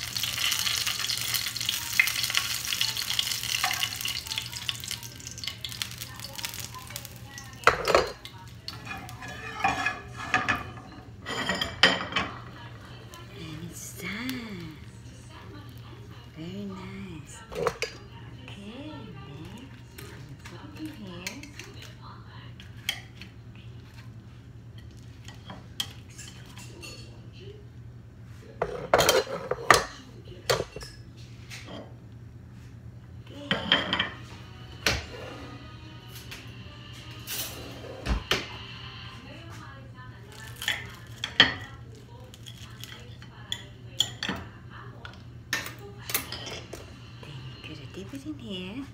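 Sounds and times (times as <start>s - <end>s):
metal tongs clinking on ceramic bowl: 0.2s - 12.3s
ceramic dishes clattering: 7.6s - 8.2s, 8.8s - 12.5s, 28.6s - 31.0s, 33.5s - 34.2s.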